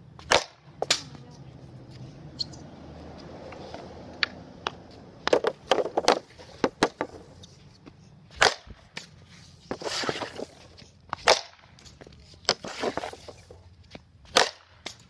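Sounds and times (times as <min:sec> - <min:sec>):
hockey stick striking puck: 0:00.2 - 0:01.2, 0:04.2 - 0:07.3, 0:08.4 - 0:13.6, 0:14.2 - 0:15.0
stick scraping: 0:04.7 - 0:14.5.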